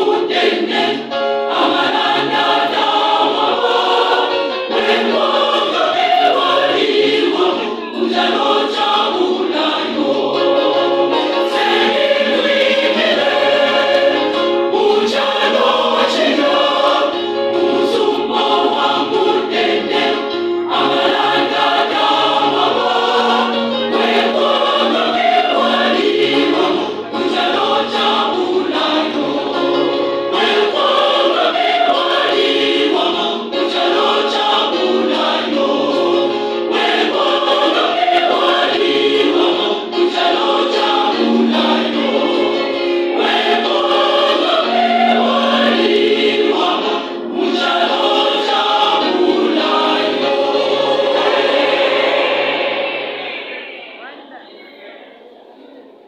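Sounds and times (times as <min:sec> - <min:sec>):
church choir singing: 0:00.0 - 0:55.8.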